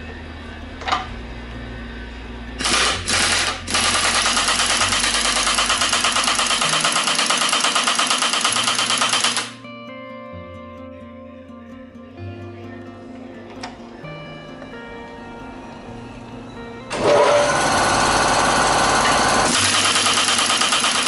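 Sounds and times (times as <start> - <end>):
pneumatic impact wrench hammering: 2.6 - 9.6, 16.9 - 21.0.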